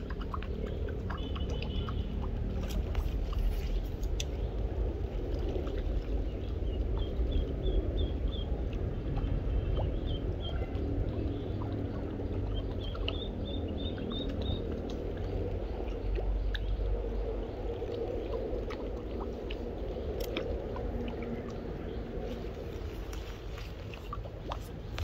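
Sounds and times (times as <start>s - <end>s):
water lapping at bank: 0.0s - 25.0s
wind rumble on microphone: 0.0s - 25.0s
duckling peeping: 9.2s - 14.7s.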